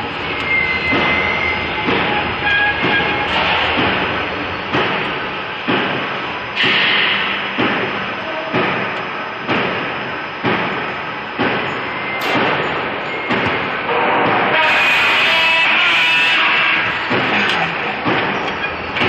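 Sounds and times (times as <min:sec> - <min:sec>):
steady machine clatter: 0:00.0 - 0:14.6, 0:16.4 - 0:19.0
sharp metallic clank: 0:11.4 - 0:13.6.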